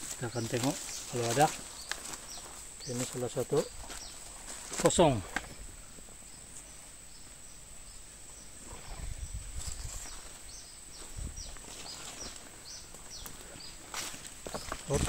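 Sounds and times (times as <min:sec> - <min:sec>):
footsteps rustling through leaves: 0:00.0 - 0:05.3, 0:09.4 - 0:15.0
high insect whine: 0:00.0 - 0:15.0.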